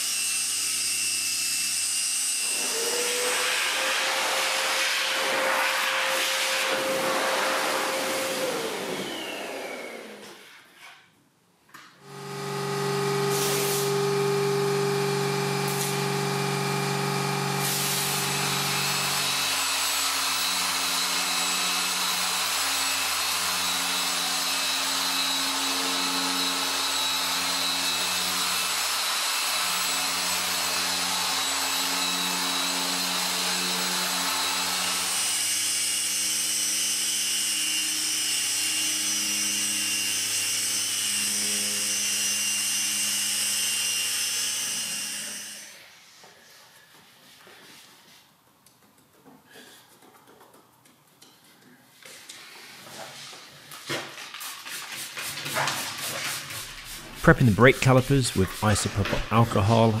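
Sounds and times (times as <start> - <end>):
paint polisher motor whirring: 0.0 - 10.6, 12.0 - 46.3.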